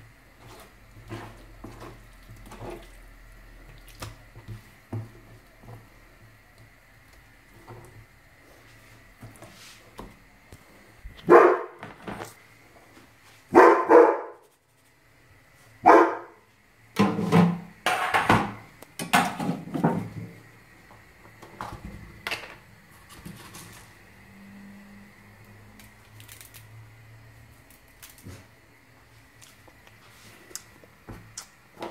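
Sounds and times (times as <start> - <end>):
dog barking loudly: 11.2 - 11.8, 13.5 - 14.4, 15.8 - 16.4.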